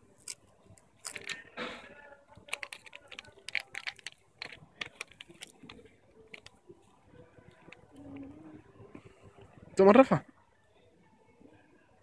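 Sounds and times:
child crunching puffed snacks: 0:00.1 - 0:01.6, 0:02.4 - 0:06.6
plastic snack bag crinkling: 0:00.1 - 0:01.6, 0:02.4 - 0:06.6.

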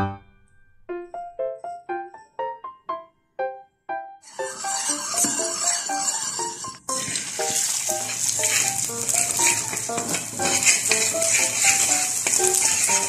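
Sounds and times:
light melody background music: 0:00.0 - 0:04.2, 0:07.0 - 0:13.0
egg sizzling in a pan: 0:04.2 - 0:13.0
spatula stirring in pan: 0:04.2 - 0:13.0.

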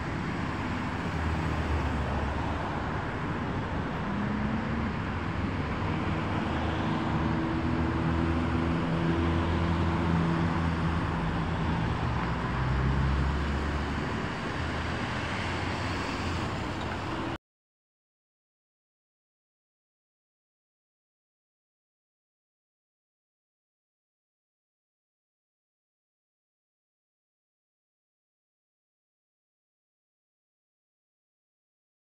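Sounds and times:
car engines and tyres: 0:00.0 - 0:17.4
low engine hum of passing vehicles: 0:00.0 - 0:17.4.

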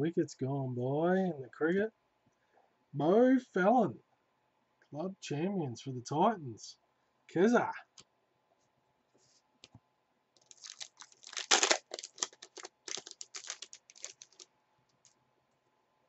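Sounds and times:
foil wrapper tearing and crinkling: 0:10.4 - 0:14.4.

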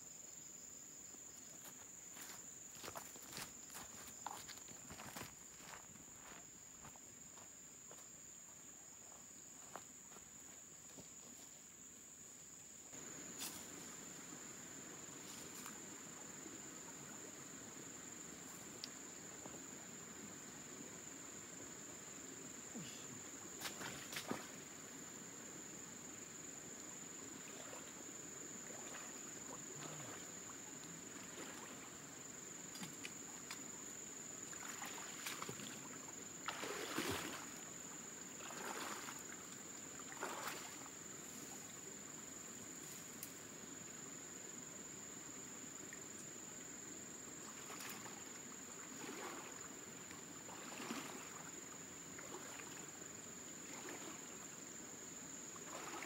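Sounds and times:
insects droning: 0:00.0 - 0:56.0
shallow creek flowing: 0:01.4 - 0:56.0
footsteps: 0:01.6 - 0:08.1
person wading through water: 0:28.6 - 0:32.1, 0:34.4 - 0:37.6, 0:38.3 - 0:41.0, 0:47.5 - 0:54.4, 0:55.5 - 0:56.0.

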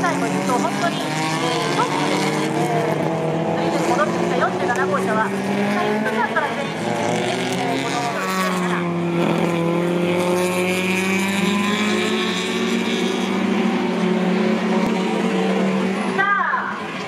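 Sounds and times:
racing car engines at high revs: 0:00.0 - 0:17.0.

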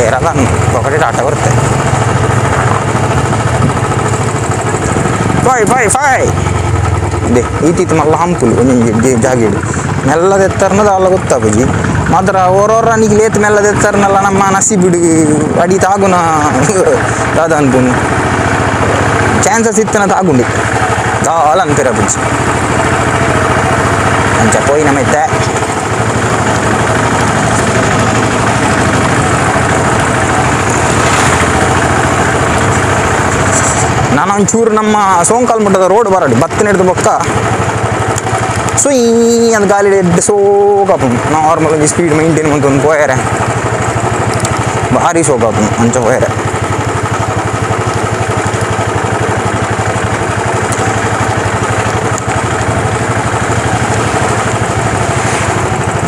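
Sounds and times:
motorcycle engine running: 0:00.0 - 0:56.0
riding wind noise: 0:02.4 - 0:06.6.

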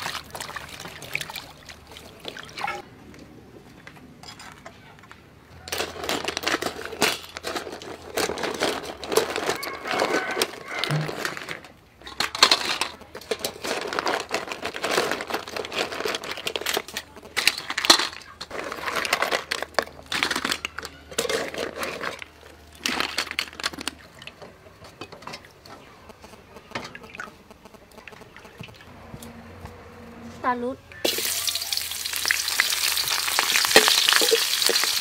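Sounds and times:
shellfish shells clattering on metal: 0:05.6 - 0:25.4, 0:32.2 - 0:35.0.

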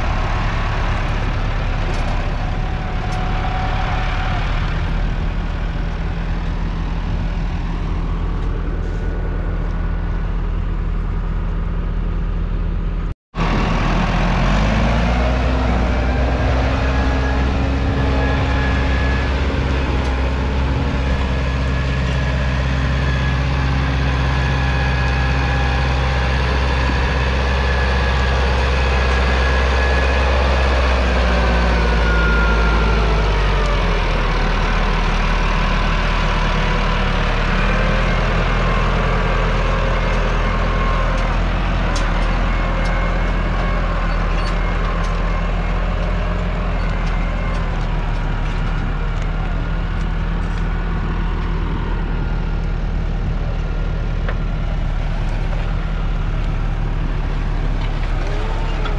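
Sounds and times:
tractor diesel engine running: 0:00.0 - 0:58.9
high whine: 0:13.4 - 0:54.4.

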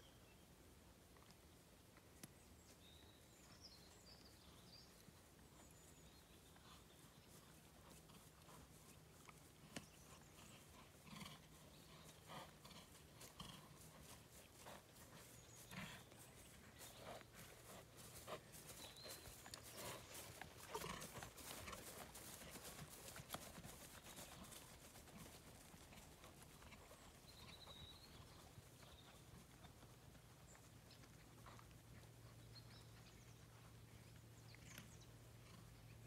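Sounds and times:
horse hoofbeats on grass: 0:02.8 - 0:36.0.

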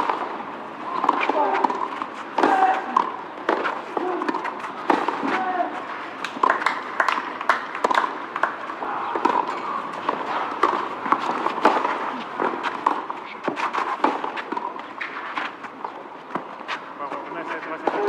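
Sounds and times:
tennis ball knocks: 0:06.2 - 0:13.1.

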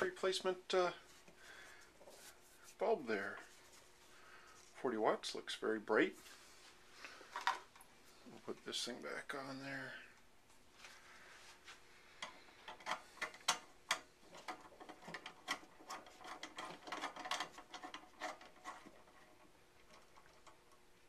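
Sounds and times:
lampshade clicking and rattling: 0:12.2 - 0:20.8.

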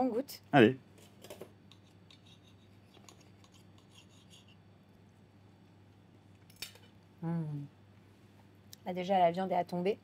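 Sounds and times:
low steady hum: 0:00.0 - 0:10.0
knife and fork scraping a plate: 0:01.0 - 0:04.7.

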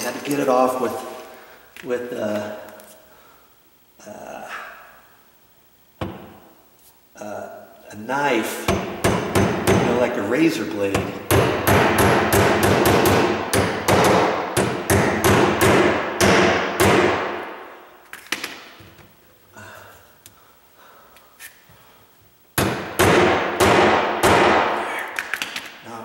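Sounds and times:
hammer striking metal plate: 0:11.0 - 0:17.6, 0:22.6 - 0:24.8.

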